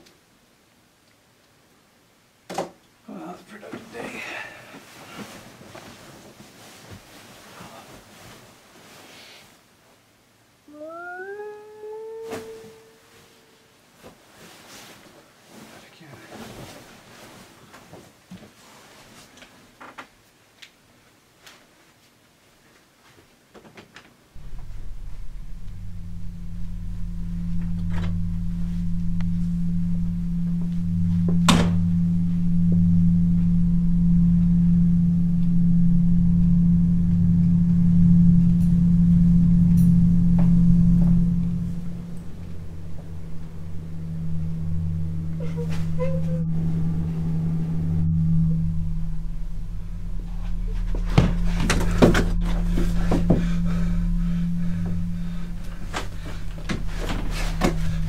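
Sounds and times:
low droning hum: 24.4s - 58.0s.

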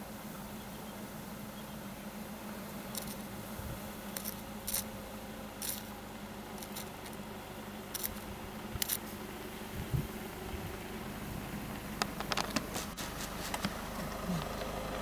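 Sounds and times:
steady low hum: 0.0s - 15.0s
rhinoceros snipping twigs: 5.6s - 7.2s.

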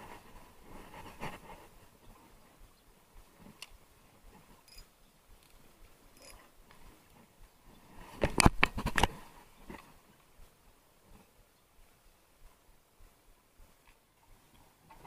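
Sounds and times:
sharp clicks and knocks: 8.2s - 9.9s.

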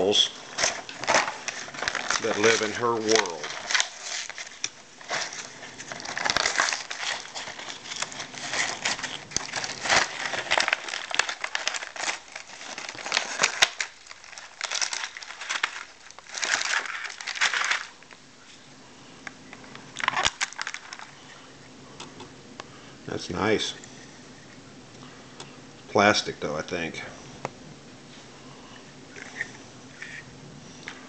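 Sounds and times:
packaging crinkling and tearing: 0.0s - 18.2s, 19.2s - 21.2s.

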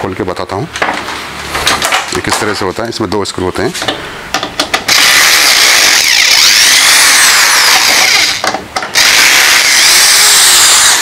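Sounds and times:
power screwdriver whining: 4.9s - 11.0s.

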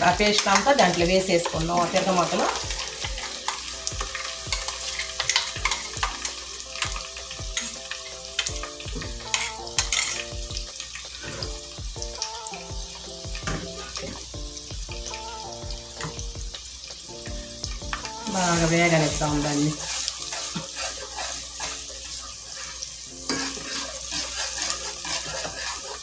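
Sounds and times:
spoon scraping pan: 0.0s - 10.4s, 18.3s - 26.0s
paste sizzling in oil: 0.0s - 26.0s.

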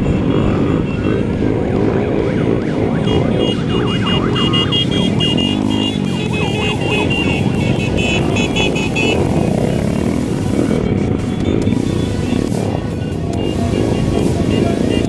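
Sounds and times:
horns honking: 0.0s - 15.0s
motorcycles running: 0.0s - 15.0s
siren-like yelp: 0.8s - 8.0s.

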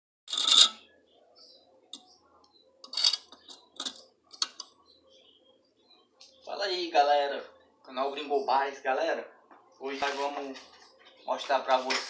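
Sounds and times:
metal tools clicking and clinking: 0.3s - 0.8s, 2.8s - 4.6s.

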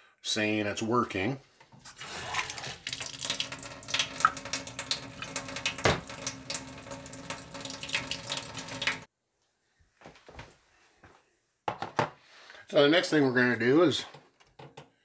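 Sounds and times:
water splashing into steel sink: 1.9s - 9.1s.

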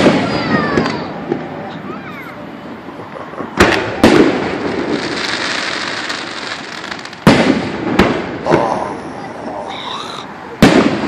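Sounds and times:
fireworks exploding: 0.0s - 11.0s
fireworks hissing: 2.4s - 11.0s.

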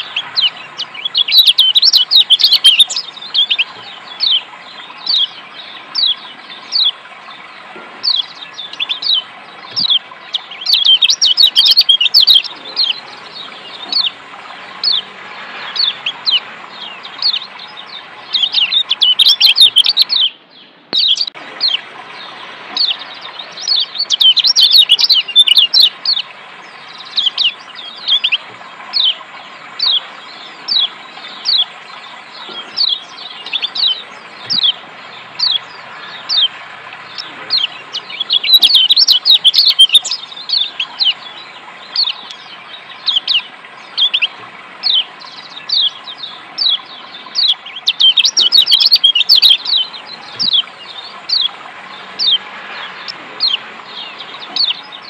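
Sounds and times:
bird chirping and chattering: 0.0s - 55.0s
running water hiss: 0.0s - 55.0s.

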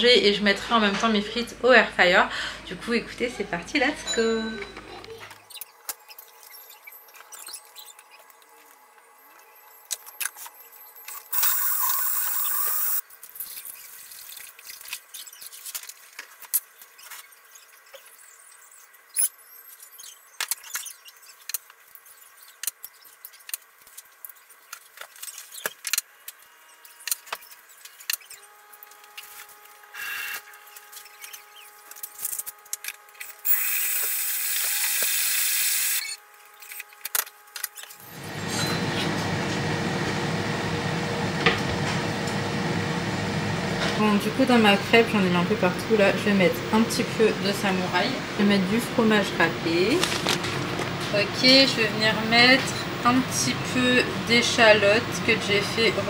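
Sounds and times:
food processor whirring: 11.3s - 13.0s, 38.0s - 45.0s.

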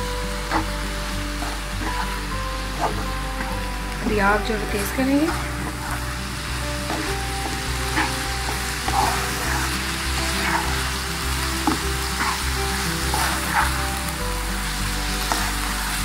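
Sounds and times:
meat filling sizzling in a pan: 0.0s - 16.0s
stirring and scraping in a pan: 0.0s - 16.0s.

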